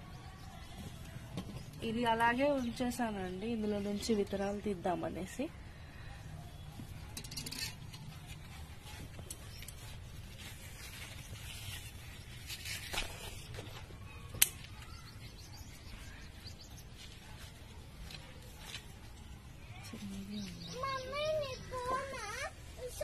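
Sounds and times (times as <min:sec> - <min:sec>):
leaves rustling by hand: 0:07.3 - 0:15.2, 0:15.8 - 0:23.0.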